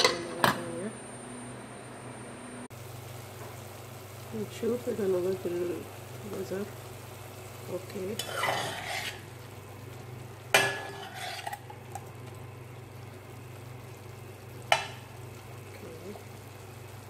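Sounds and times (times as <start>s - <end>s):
faint sizzle: 0.0s - 17.0s
steady low hum: 0.0s - 17.0s
metal spoon stirring vegetables: 8.0s - 9.3s, 10.5s - 12.1s
metal clank on pan: 10.5s - 11.7s, 14.7s - 15.0s.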